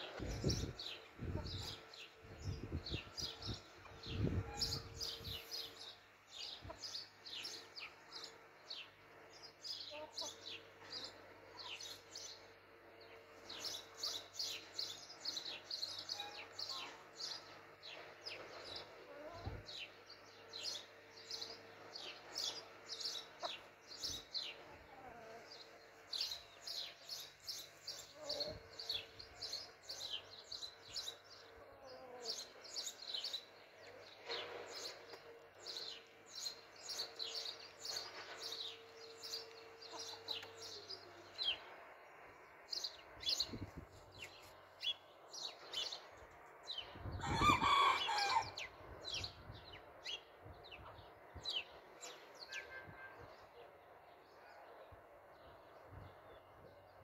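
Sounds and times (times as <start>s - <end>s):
small birds chirping: 0.0s - 57.0s
chickens clucking: 6.4s - 8.0s, 18.8s - 19.7s, 22.2s - 26.4s, 39.3s - 41.6s.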